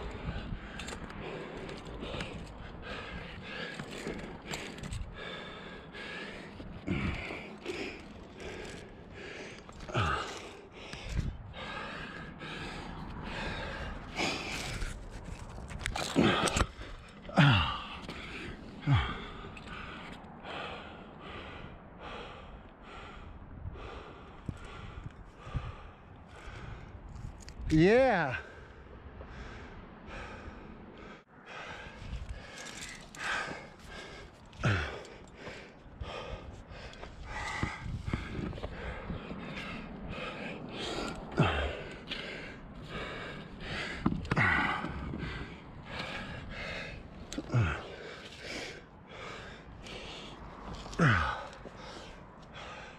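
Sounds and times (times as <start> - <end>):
person breathing hard: 0.0 - 27.7, 28.4 - 52.9
short grunts: 50.9 - 51.6.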